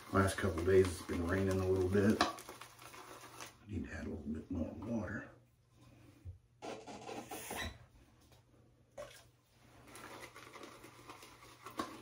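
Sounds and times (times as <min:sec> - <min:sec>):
shaving brush churning lather: 0:00.0 - 0:04.0, 0:09.8 - 0:12.0.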